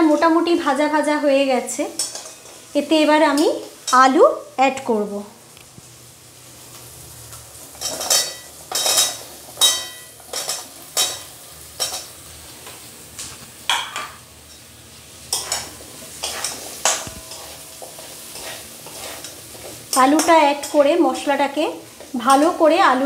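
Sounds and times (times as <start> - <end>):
oil sizzling: 0.0 - 23.0
spatula scraping and clinking pan: 1.9 - 2.6, 7.8 - 12.1, 15.3 - 20.9.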